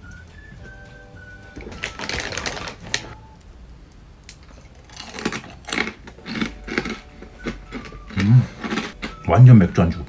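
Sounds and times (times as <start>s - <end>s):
crisp chewing crunches: 1.6s - 3.2s, 4.5s - 9.2s.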